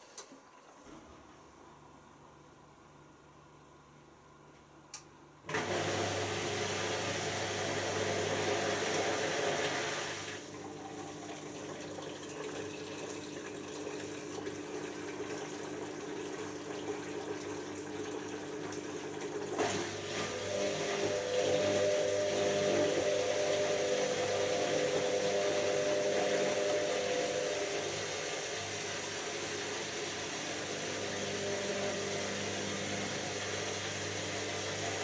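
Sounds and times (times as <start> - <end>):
washing machine hum: 0.0 - 35.0
click: 4.5 - 5.1
washing machine rush: 5.5 - 35.0.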